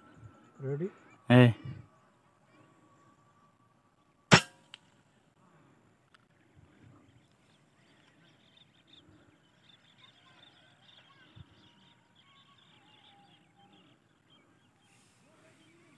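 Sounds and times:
small birds chirping: 6.3s - 15.9s.

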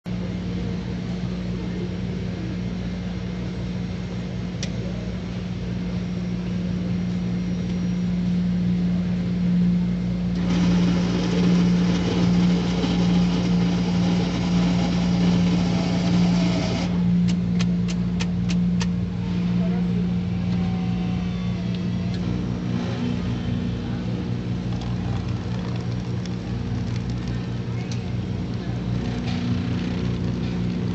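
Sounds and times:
coffee machine humming: 0.1s - 30.9s
coffee machine whirring: 10.3s - 17.2s, 20.0s - 30.9s.

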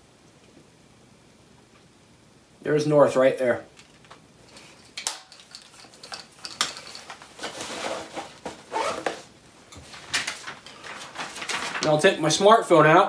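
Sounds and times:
clothing rustling: 3.8s - 12.1s.

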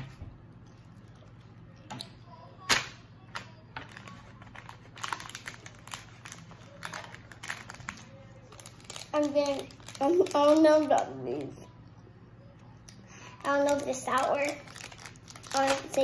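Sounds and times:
child chewing candy: 4.7s - 11.7s.

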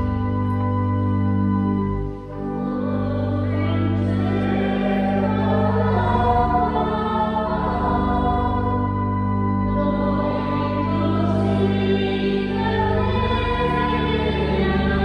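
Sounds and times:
church organ playing chords: 0.0s - 15.0s
voices singing: 2.6s - 9.1s, 9.8s - 15.0s.

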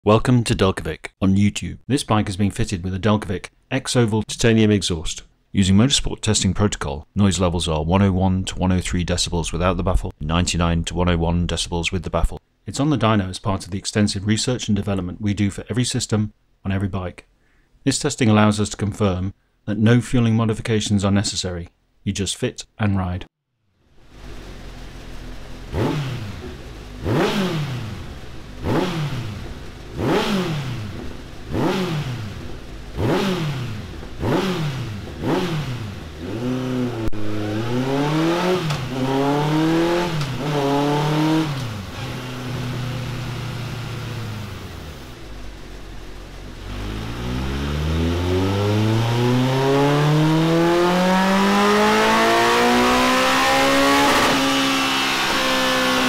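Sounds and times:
motorcycle engine revving: 24.3s - 56.0s.

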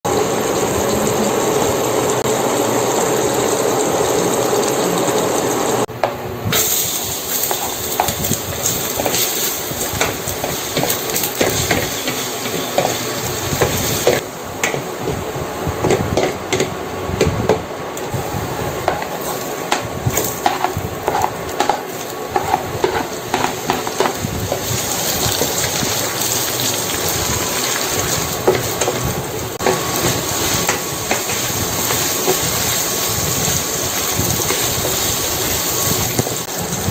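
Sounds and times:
vegetables sizzling in hot oil: 0.1s - 36.9s
wooden spatula scraping pan: 18.9s - 25.7s.

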